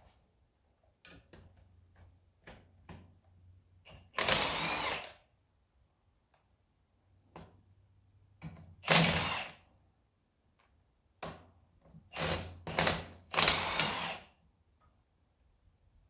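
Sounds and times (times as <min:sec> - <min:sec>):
impact wrench bursts: 0:03.9 - 0:05.2, 0:08.8 - 0:09.6, 0:12.1 - 0:14.4.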